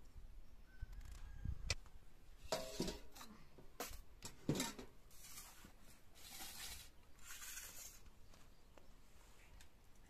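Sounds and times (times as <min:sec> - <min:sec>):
metal plates clinking on concrete: 0:02.5 - 0:05.0.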